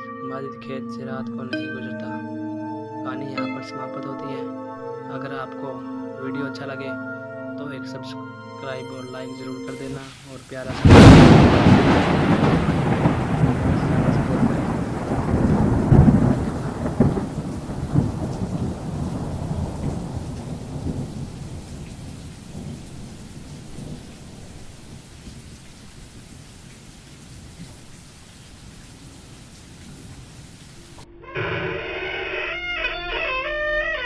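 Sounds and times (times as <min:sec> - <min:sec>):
rain: 0:09.1 - 0:31.1
thunder rumbling: 0:10.0 - 0:26.7.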